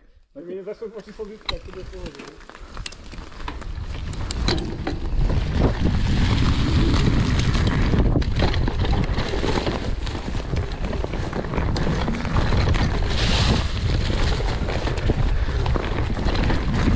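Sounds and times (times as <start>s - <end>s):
bike clicks and knocks: 1.0s - 5.8s, 6.4s - 13.2s
wind buffeting microphone: 1.5s - 16.9s.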